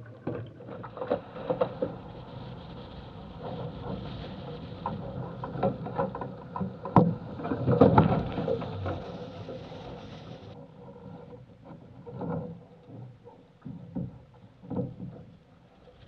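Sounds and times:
water splashing against boat hull: 0.0 - 10.6
wind on microphone: 0.8 - 10.6.

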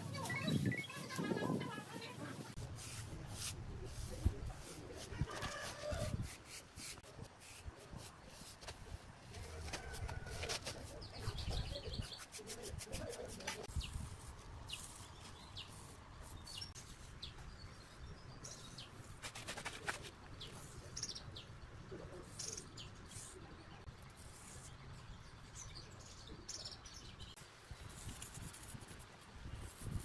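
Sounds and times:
brushing on cement render: 0.0 - 17.2, 18.6 - 20.9, 27.9 - 30.0
outdoor background noise: 0.0 - 30.0
small birds chirping: 10.8 - 27.4.

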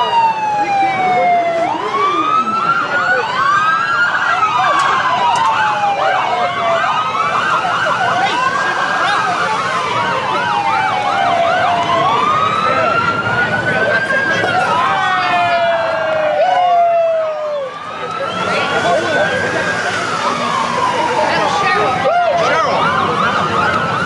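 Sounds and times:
siren fast yelp: 0.0 - 24.0
siren slow wail: 0.0 - 24.0.

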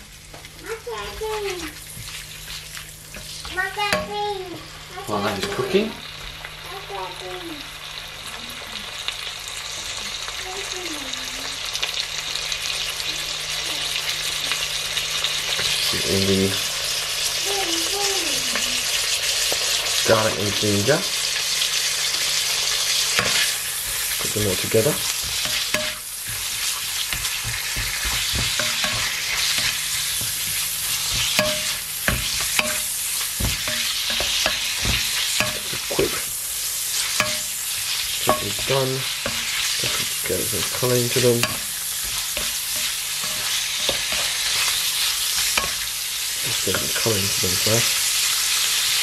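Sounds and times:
meat sizzling in oil: 0.0 - 49.0
oil popping and crackling: 22.1 - 47.9
spatula knocking and scraping pan: 23.1 - 45.9, 46.5 - 47.8.

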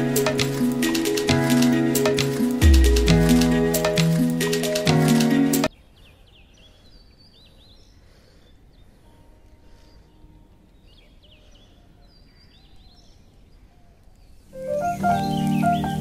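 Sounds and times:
bird chirping: 2.4 - 16.0.

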